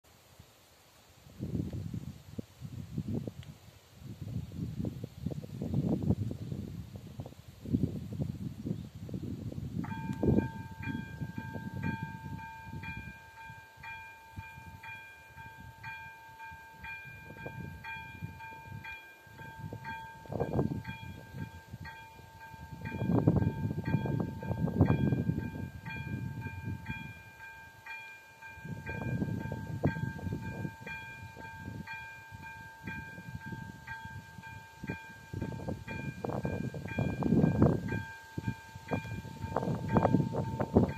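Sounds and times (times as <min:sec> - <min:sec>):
level crossing warning bell: 0:09.8 - 0:40.9.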